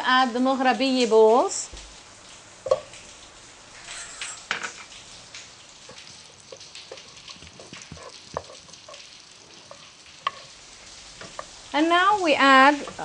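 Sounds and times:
butter sizzling in a pot: 2.6s - 13.0s
wooden spoon stirring: 6.6s - 11.5s.

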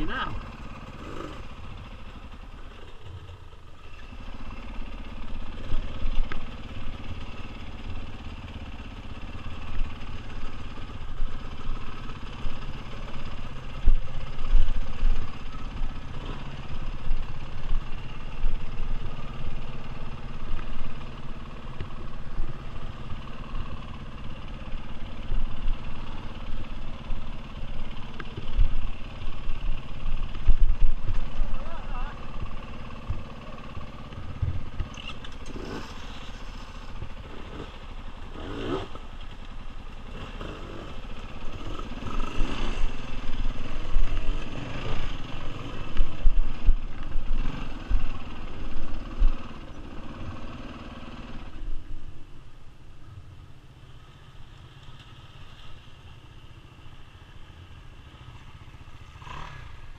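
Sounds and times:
dirt bike engine running: 0.0s - 59.9s.

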